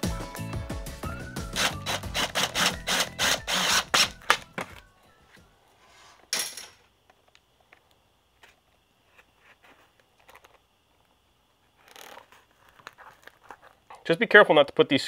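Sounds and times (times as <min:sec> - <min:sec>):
cordless drill clicking: 0:01.6 - 0:04.5.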